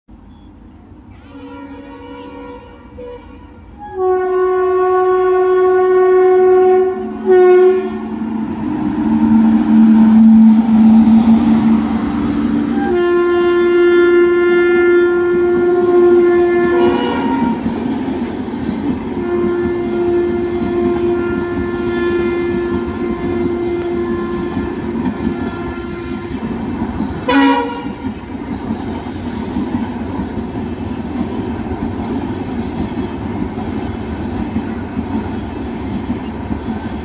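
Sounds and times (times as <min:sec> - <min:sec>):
train wheels rumbling on rails: 0:00.1 - 0:37.0
train horn blasts: 0:01.1 - 0:17.8, 0:19.1 - 0:28.3.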